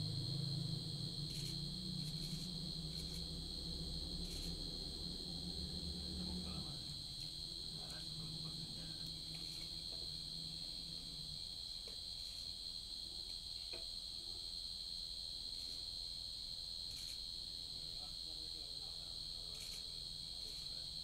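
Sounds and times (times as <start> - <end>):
low hum: 0.0 - 11.5
insects shrilling: 0.1 - 12.8.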